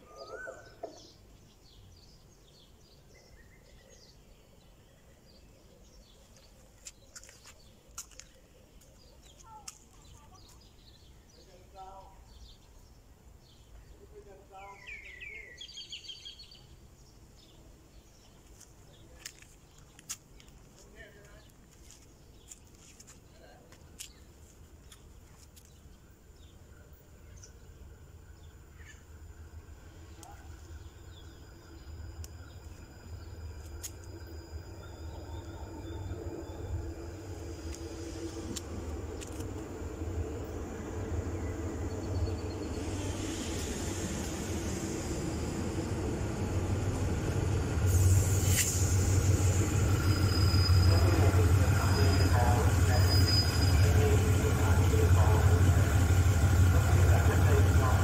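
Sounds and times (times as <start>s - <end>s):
small birds chirping: 0.0s - 58.0s
low rumble: 27.7s - 58.0s.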